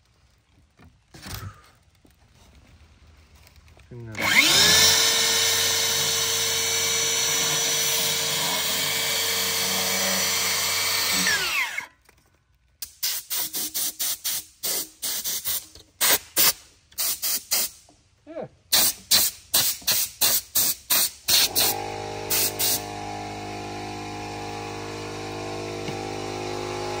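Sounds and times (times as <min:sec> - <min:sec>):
circular saw cutting foam: 0:04.2 - 0:12.0, 0:19.6 - 0:27.0.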